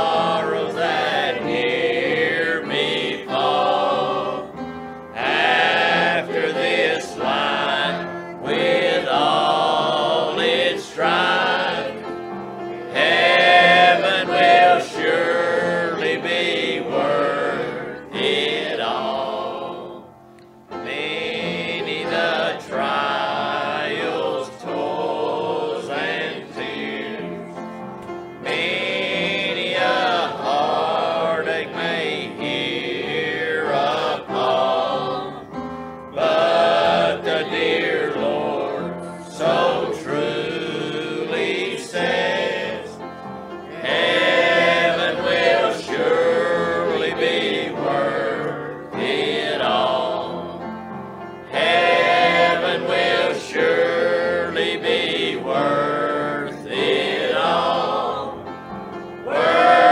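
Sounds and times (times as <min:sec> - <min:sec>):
choir singing a hymn: 0:00.0 - 0:59.9.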